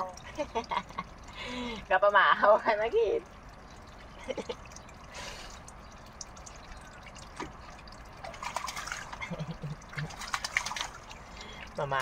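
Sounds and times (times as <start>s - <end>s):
water trickling into steel basin: 0.0s - 12.0s
bird splashing in water: 4.7s - 12.0s.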